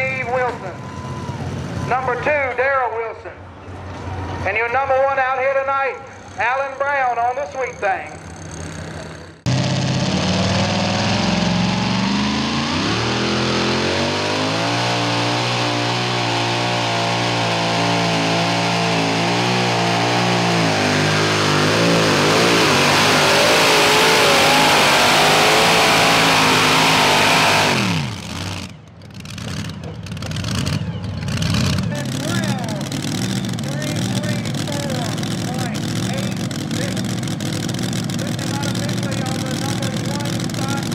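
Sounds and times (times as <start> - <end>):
supercharged engine revving under load: 8.4 - 40.9.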